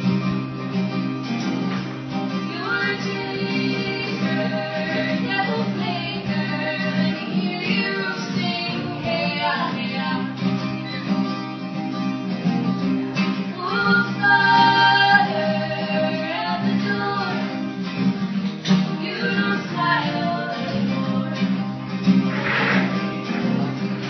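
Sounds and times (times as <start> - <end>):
acoustic guitars strumming: 0.0 - 24.0
woman singing: 2.4 - 10.7, 13.4 - 17.8, 18.8 - 21.8.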